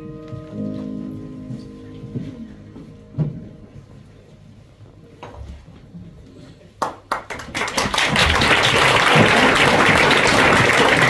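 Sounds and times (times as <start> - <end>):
audience applause: 6.8 - 11.0.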